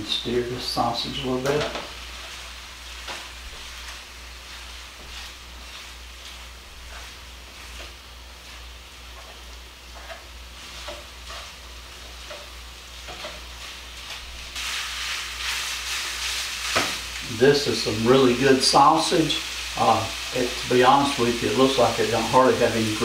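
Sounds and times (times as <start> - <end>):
sausage sizzling in skillet: 0.0 - 23.0
spatula scraping skillet: 1.4 - 23.0.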